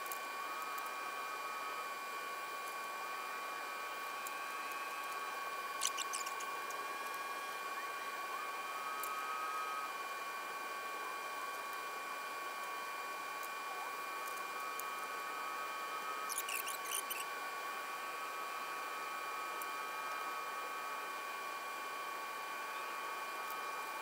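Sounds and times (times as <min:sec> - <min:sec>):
faint high whines: 0:00.8 - 0:11.3, 0:12.0 - 0:20.8
small metal parts clicking: 0:05.8 - 0:06.4, 0:16.3 - 0:17.2.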